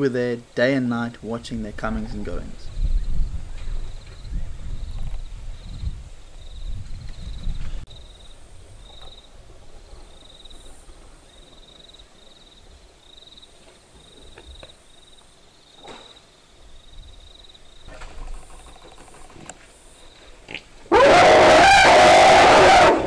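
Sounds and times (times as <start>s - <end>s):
cricket chirping: 2.6s - 20.9s.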